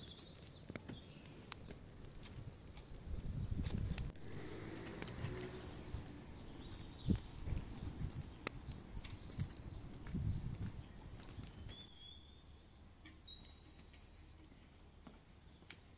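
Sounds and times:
sticks knocking and scraping: 0.0 - 5.6
faint bird chirp: 5.4 - 15.8.

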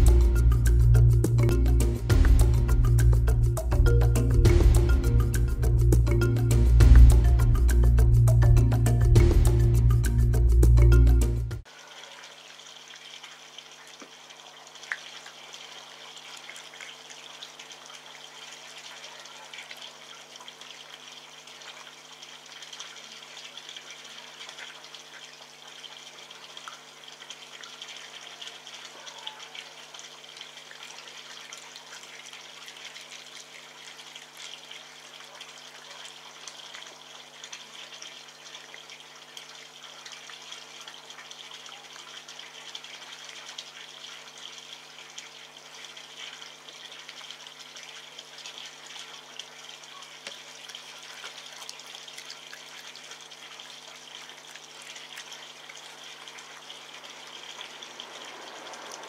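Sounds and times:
low electrical hum: 29.7 - 59.0.

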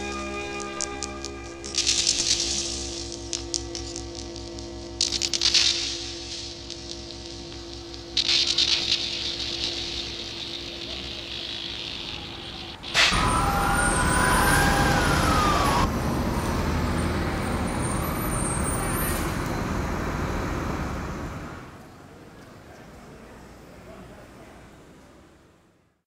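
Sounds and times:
city street traffic: 7.0 - 25.9
emergency vehicle siren wailing: 10.6 - 21.8.

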